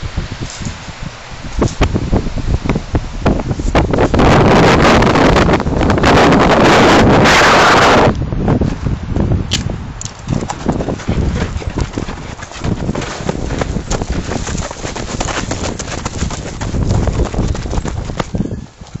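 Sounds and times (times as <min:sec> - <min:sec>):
wind buffeting microphone: 0:00.0 - 0:19.0
running footsteps on dirt: 0:10.0 - 0:19.0.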